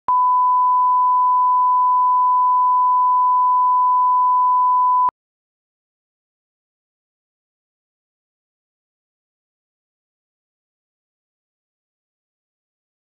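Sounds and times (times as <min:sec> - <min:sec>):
sine test tone: 0:00.1 - 0:05.1.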